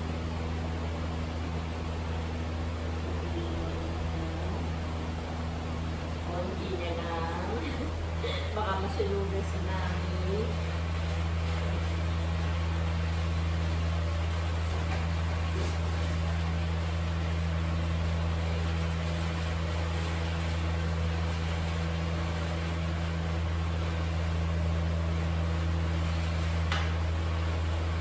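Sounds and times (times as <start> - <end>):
low mechanical hum: 0.0 - 28.0.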